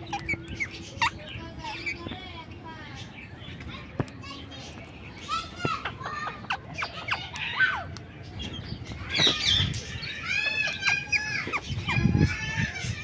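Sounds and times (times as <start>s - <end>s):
parakeets chattering: 0.0s - 13.0s
sharp clicks: 3.5s - 5.9s.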